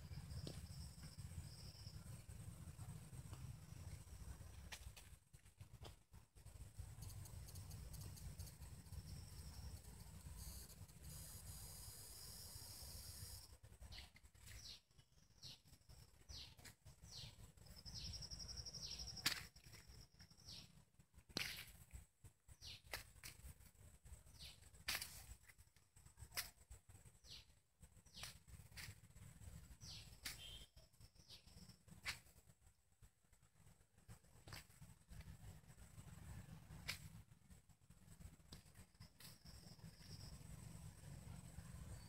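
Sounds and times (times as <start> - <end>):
small bird chirps: 6.9 - 20.8, 22.5 - 23.0, 24.3 - 24.7, 27.1 - 32.2.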